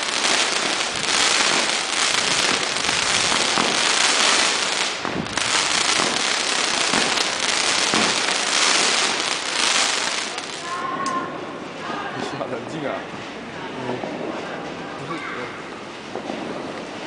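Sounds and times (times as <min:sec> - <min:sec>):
fireworks crackling and popping: 0:00.0 - 0:10.8.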